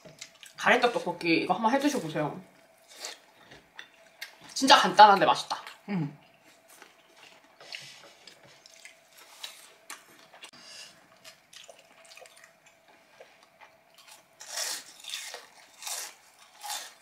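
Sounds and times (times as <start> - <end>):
faint steady hum: 0.0 - 17.0
chewing: 6.3 - 17.0.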